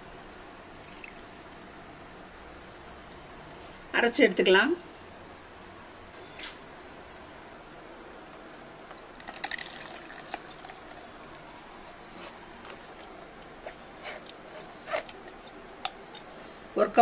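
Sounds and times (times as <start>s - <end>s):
pulp pouring through strainer: 8.9s - 16.2s.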